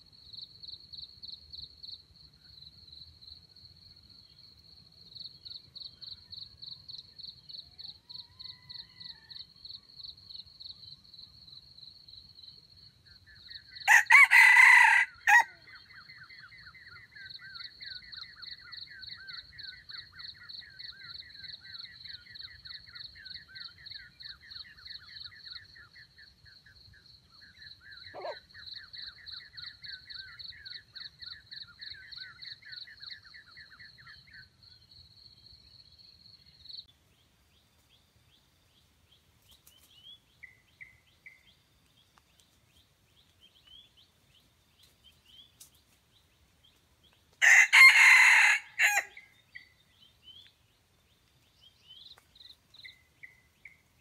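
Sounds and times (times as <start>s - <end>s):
rooster crowing: 8.1s - 9.5s, 13.9s - 15.6s, 47.4s - 49.2s.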